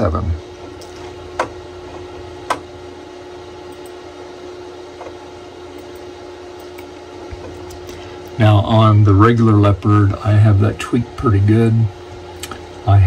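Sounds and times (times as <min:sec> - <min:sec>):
background hum: 0:00.0 - 0:13.0.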